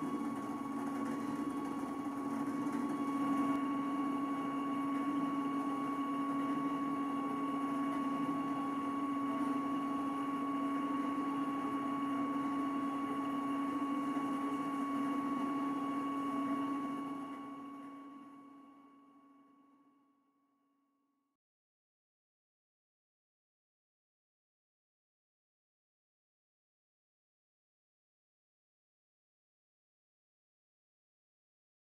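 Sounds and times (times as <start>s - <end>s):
stepper motor humming and whining: 0.0s - 18.6s.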